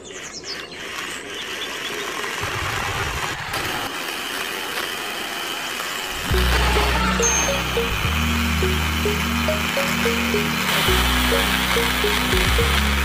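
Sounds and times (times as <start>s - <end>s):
small electric motor whirring: 0.0s - 2.6s.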